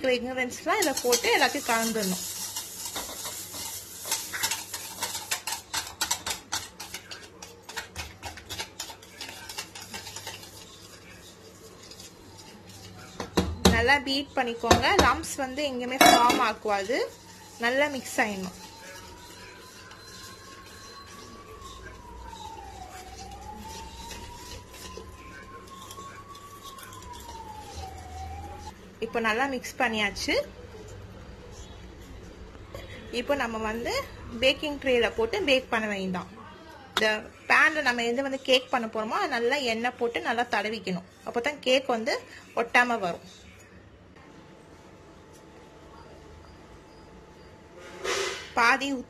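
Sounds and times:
whisk clicking against steel bowl: 0:00.8 - 0:14.0, 0:14.6 - 0:25.0.

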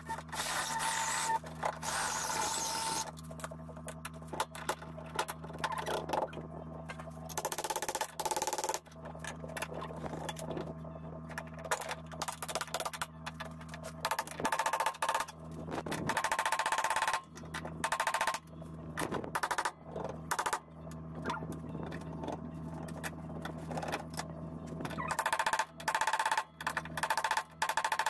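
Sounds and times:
steady low hum: 0:00.0 - 0:28.0
power drill cutting steel: 0:00.2 - 0:03.1.

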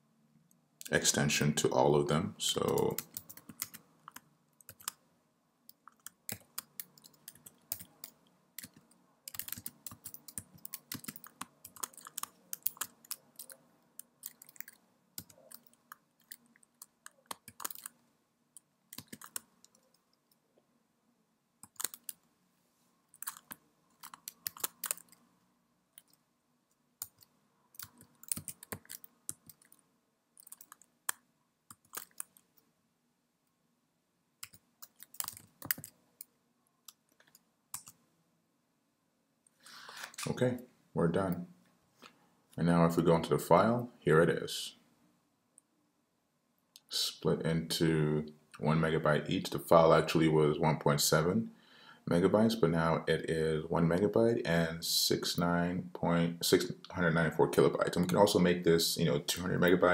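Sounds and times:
typing on computer keyboard: 0:02.7 - 0:05.0, 0:05.8 - 0:18.0, 0:18.9 - 0:19.9, 0:21.6 - 0:22.2, 0:23.2 - 0:25.2, 0:27.0 - 0:29.8, 0:30.4 - 0:30.9, 0:31.7 - 0:32.4, 0:34.4 - 0:36.0.

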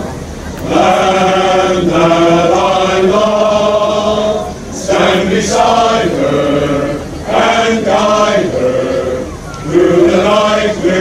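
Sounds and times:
men's chorus singing a cappella: 0:00.6 - 0:11.0.

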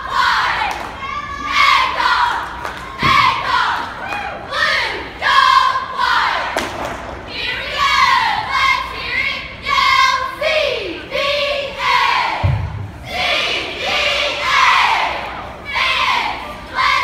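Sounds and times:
cheerleaders shouting in unison: 0:00.0 - 0:06.6, 0:07.3 - 0:17.0
thump: 0:12.4 - 0:12.9.

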